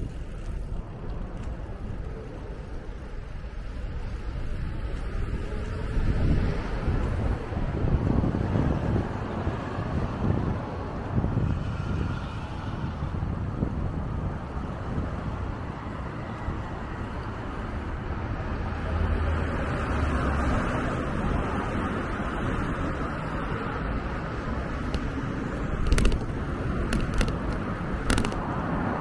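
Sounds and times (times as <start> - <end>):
wind buffeting microphone: 0.0 - 19.0, 20.9 - 29.0
street traffic: 0.0 - 29.0.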